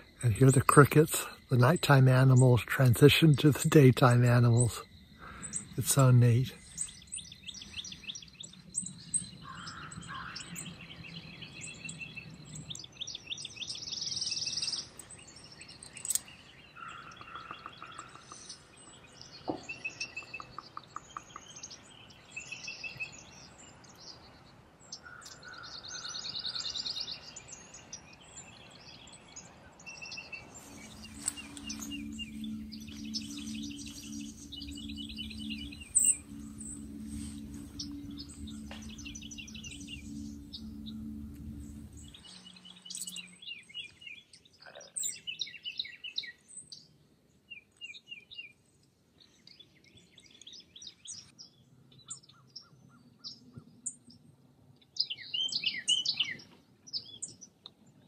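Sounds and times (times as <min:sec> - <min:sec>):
birds chirping and trilling: 0:00.0 - 0:58.0
low hum: 0:29.7 - 0:44.0.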